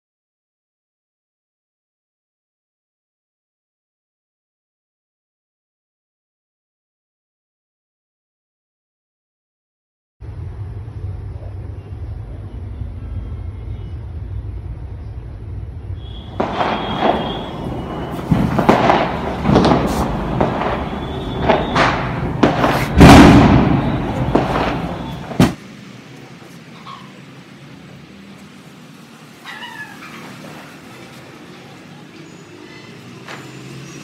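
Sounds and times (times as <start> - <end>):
low rumble: 10.2 - 25.4
firecrackers banging and crackling: 16.0 - 26.7.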